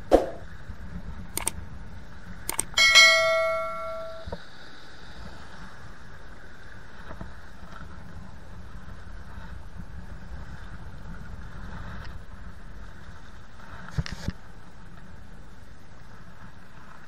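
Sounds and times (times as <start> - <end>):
steady background noise: 0.0 - 9.1
sharp clicks: 1.4 - 1.6, 2.5 - 2.9
metallic ringing tone: 2.7 - 4.4.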